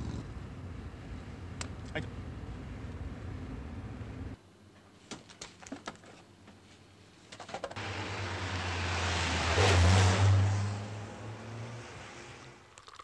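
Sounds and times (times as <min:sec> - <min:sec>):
car driving past: 0:07.8 - 0:12.7.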